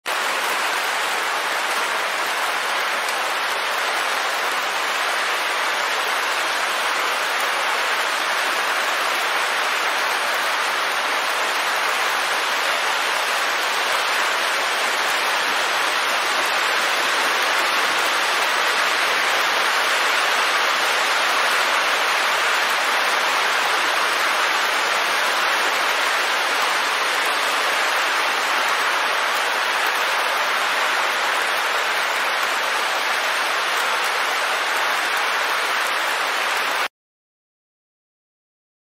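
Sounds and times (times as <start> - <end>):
steady rain falling: 0.1 - 36.9.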